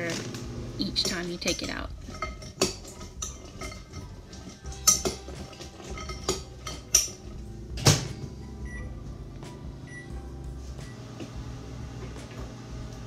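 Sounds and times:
metal spoon clinking in glass bowl: 1.0s - 7.3s.

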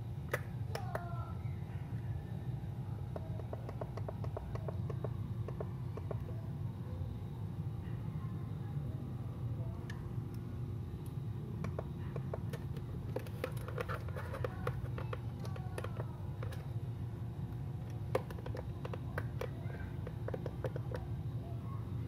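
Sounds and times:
steady low hum: 0.0s - 22.0s
light clicks and scratches: 11.6s - 16.7s, 17.8s - 21.1s.

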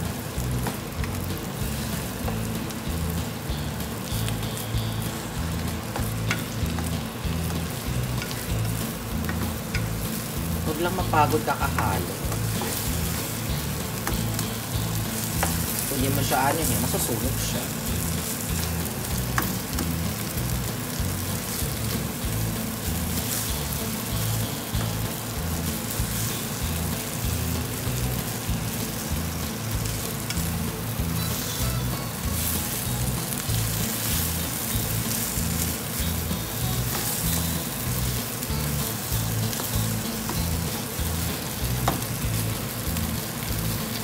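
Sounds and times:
background music with bass line: 0.0s - 44.0s
meat sizzling in sauce: 0.0s - 44.0s
spatula stirring in wok: 11.8s - 15.9s.

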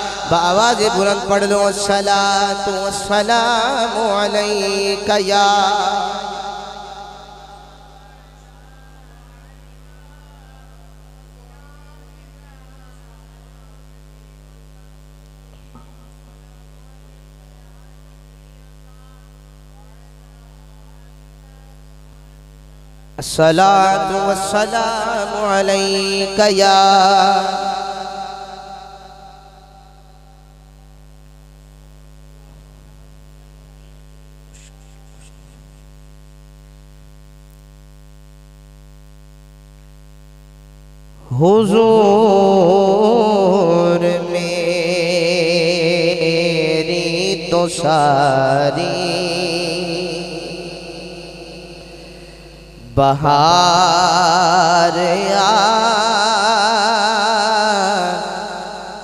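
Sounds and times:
man singing loudly: 0.0s - 8.4s, 23.2s - 30.5s, 41.2s - 59.0s
electrical mains hum: 0.0s - 59.0s.

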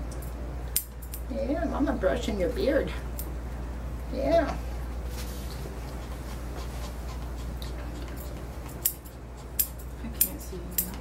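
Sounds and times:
steady low hum: 0.0s - 11.0s
shears snipping hair: 5.8s - 11.0s.

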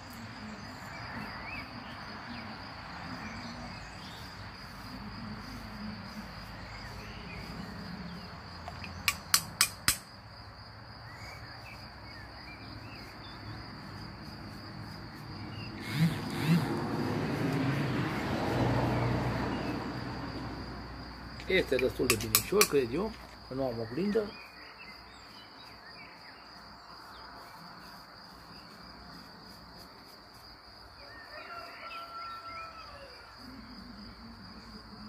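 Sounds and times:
crickets trilling: 0.0s - 35.0s
sharp clicks: 8.7s - 10.1s.

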